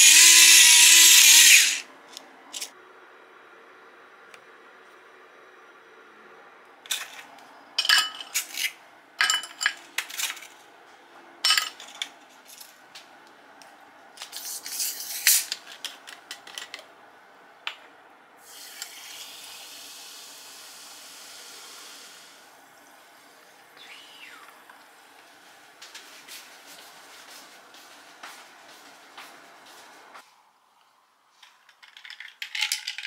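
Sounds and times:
carbonated water fizzing: 18.4 - 25.0.

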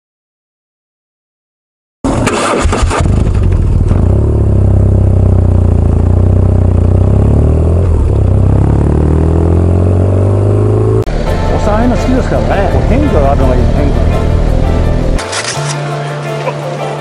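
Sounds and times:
motorcycle engine accelerating: 2.0 - 15.2.

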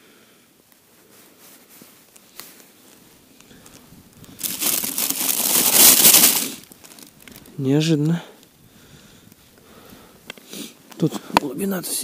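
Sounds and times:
bag crinkling rustle: 3.6 - 7.6.

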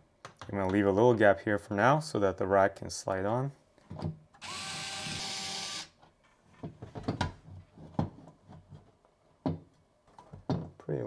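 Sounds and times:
cordless drill whining: 4.4 - 5.9.

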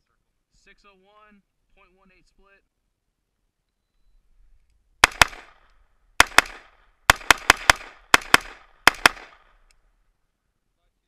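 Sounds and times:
rifle firing rapid shots: 5.0 - 5.6, 6.2 - 9.5.

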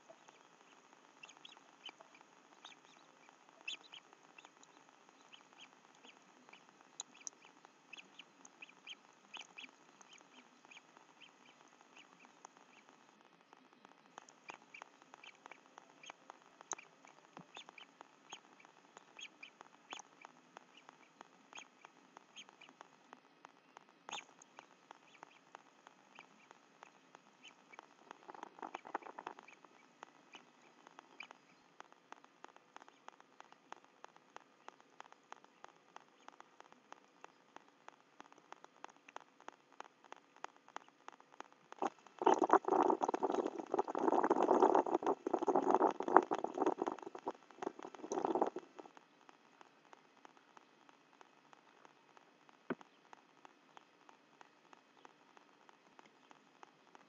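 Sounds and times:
steady hiss: 0.0 - 57.0
raindrops tapping: 37.6 - 51.3.

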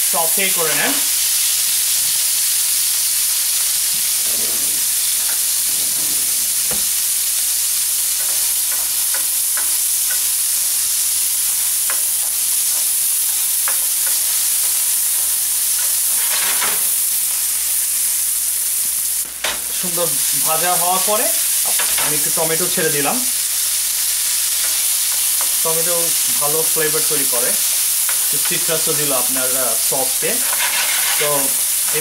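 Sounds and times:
vegetables sizzling in a pan: 0.0 - 32.0
stirring clicks and scrapes: 30.4 - 32.0.

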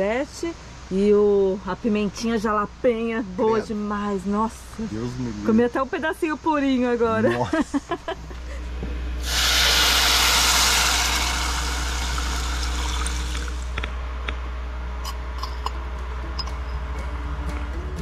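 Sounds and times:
meat sizzling on a grill: 9.2 - 13.7.

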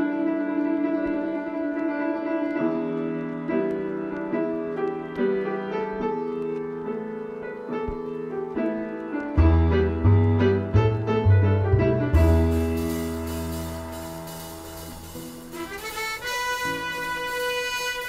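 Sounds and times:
piano music: 0.0 - 18.0
low bass notes: 9.4 - 16.3.

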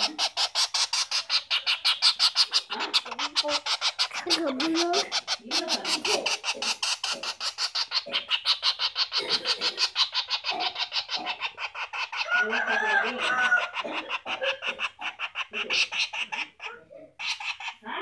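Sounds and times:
woodpecker rapid high calls: 0.0 - 18.0.

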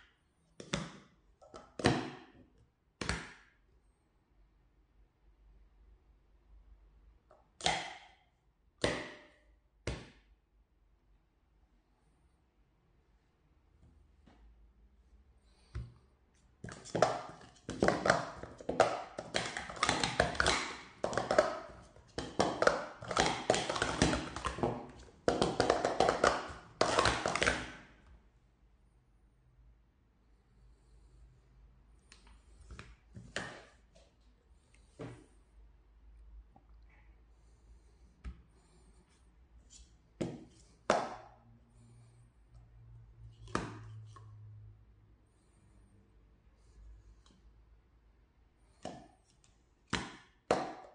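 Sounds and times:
plastic cups knocking and clacking: 0.6 - 3.5, 8.8 - 10.3, 16.6 - 28.0, 32.2 - 34.2, 39.7 - 41.5, 43.2 - 44.5, 48.7 - 50.9
plastic cups clattering: 16.6 - 28.0.

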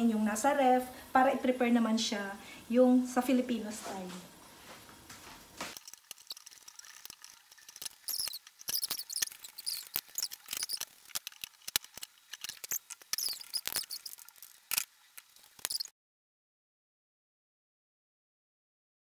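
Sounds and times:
chicken sizzling in a pan: 4.9 - 15.9.

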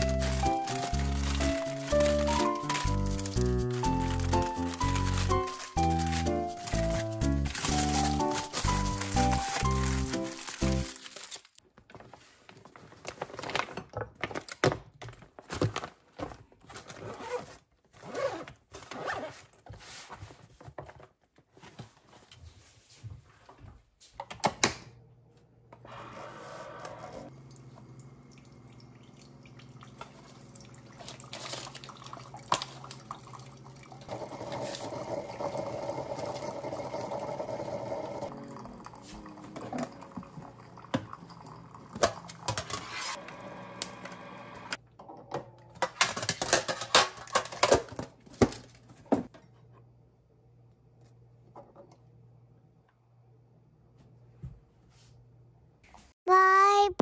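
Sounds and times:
lunch bag crinkling: 0.0 - 14.6
coffee maker humming: 25.7 - 44.8.

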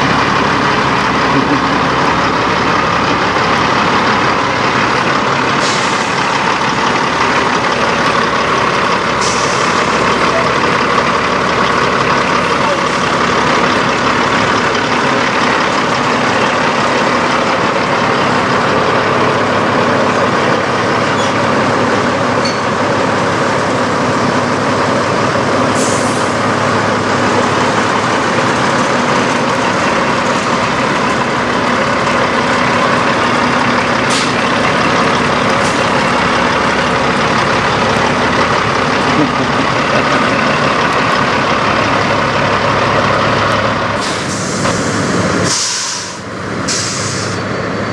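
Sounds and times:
truck diesel engine idling: 0.0 - 47.9
short air hisses: 5.6 - 6.2, 34.1 - 34.4, 44.0 - 47.4.

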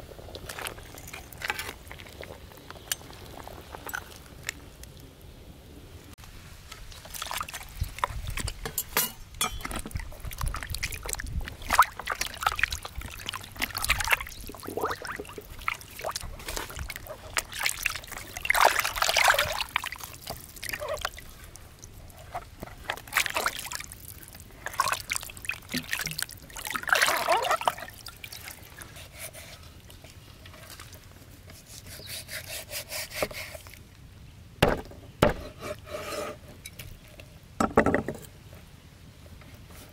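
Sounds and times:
water splashing in a basin: 6.9 - 8.5, 9.6 - 28.8
cleaver chopping on a board: 34.6 - 35.5.

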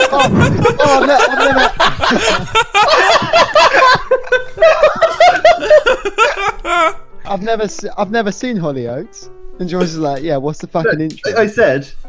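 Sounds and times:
men laughing: 0.0 - 7.0.

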